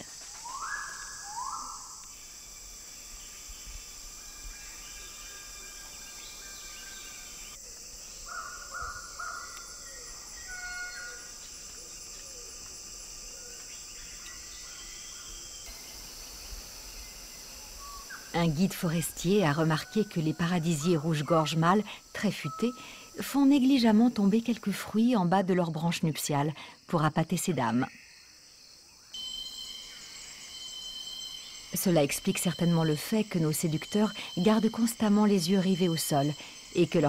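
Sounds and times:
insects humming: 0.0s - 37.0s.

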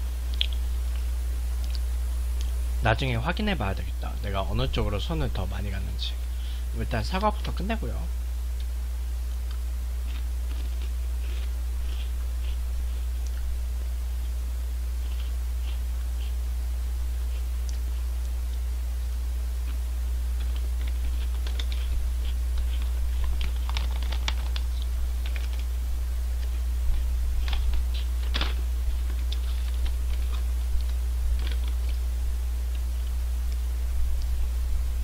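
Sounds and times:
low electrical hum: 0.0s - 35.0s
plastic snack bag crinkling: 20.4s - 25.7s.

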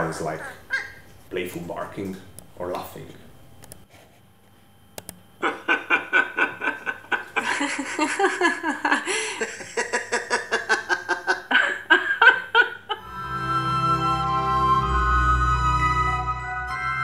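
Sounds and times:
person laughing: 5.4s - 13.1s.

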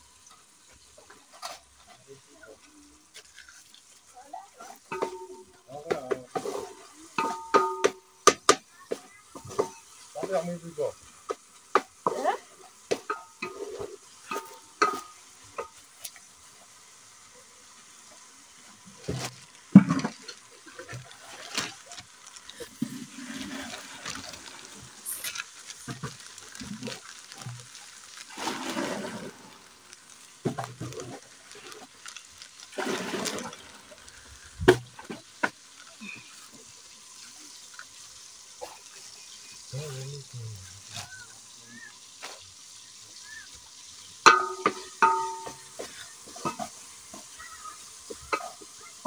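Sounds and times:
plastic bag rustling: 18.9s - 36.5s.

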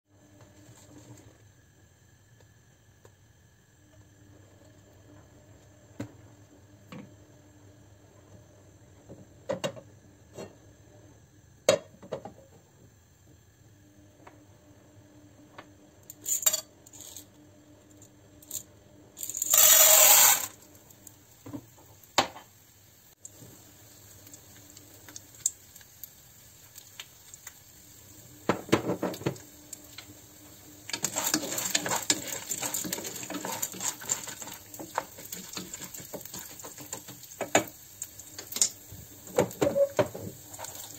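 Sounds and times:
kernels sizzling in hot oil: 16.0s - 40.9s
popcorn kernels poured into pan: 19.2s - 20.6s, 30.8s - 38.8s, 39.4s - 40.9s.

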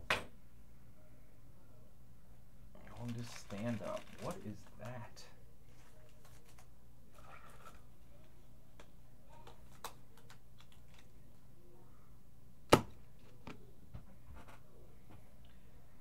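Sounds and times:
trading cards and packaging handled: 2.8s - 5.1s, 5.7s - 11.4s.

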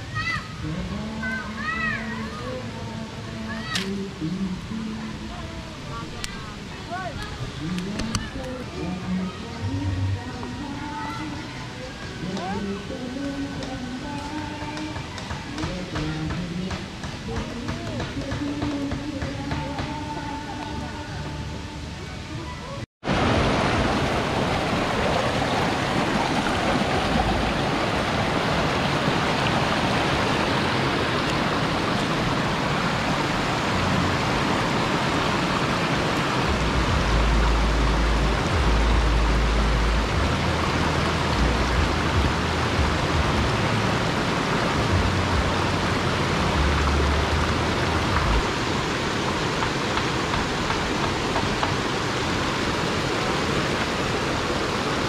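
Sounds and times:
river rushing over boulders: 0.0s - 55.0s
low rumbles: 23.0s - 49.5s.

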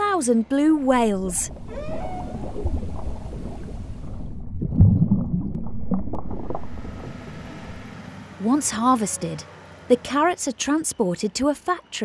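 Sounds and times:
underwater rumbling swell: 1.2s - 8.3s.

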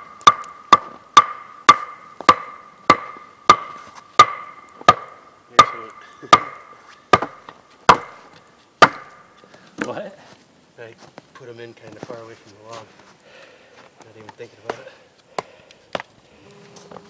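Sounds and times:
log knocking wooden stake: 0.2s - 9.2s.

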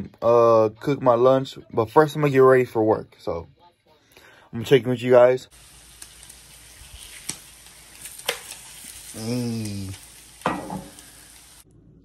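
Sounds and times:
eggs sizzling in a frying pan: 5.5s - 11.7s.

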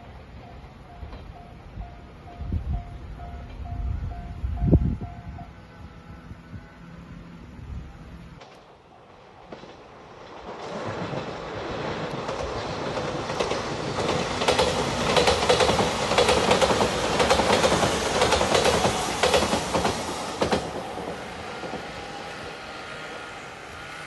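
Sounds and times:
train passing at speed: 0.0s - 24.0s.

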